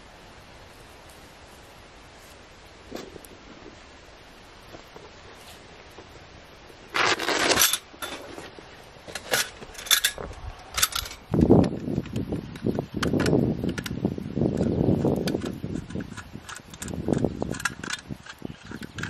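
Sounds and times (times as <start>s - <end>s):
rustling: 0.6s - 19.0s
metal grill parts clinking: 7.0s - 8.4s, 9.1s - 11.3s.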